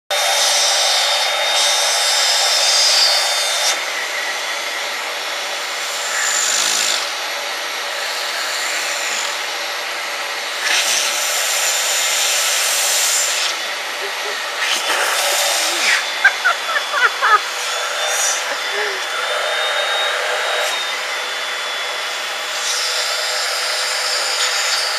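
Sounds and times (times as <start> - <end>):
vacuum cleaner drawing air: 0.2 - 24.9.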